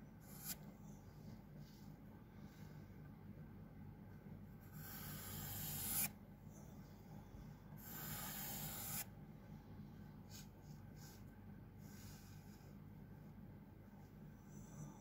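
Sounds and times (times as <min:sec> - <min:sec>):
pencil scratching on paper: 0:07.8 - 0:09.1.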